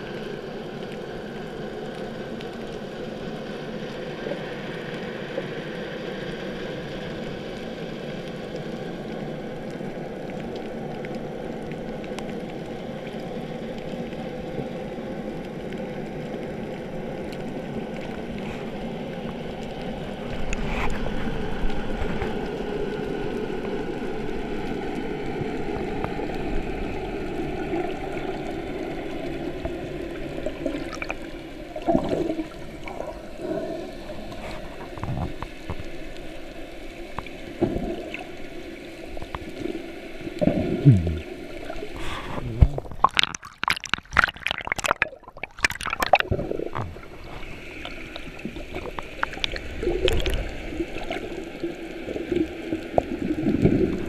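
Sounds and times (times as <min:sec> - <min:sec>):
steady low underwater drone: 0:00.0 - 0:54.0
gurgling bubble bursts: 0:27.4 - 0:35.4, 0:39.4 - 0:54.0.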